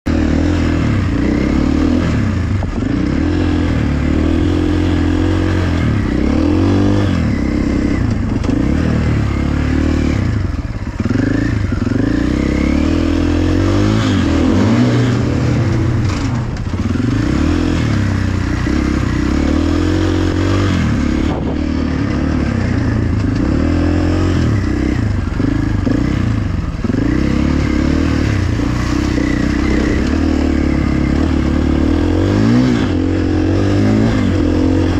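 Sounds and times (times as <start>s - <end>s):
dirt bike engine revving: 0.1s - 34.9s.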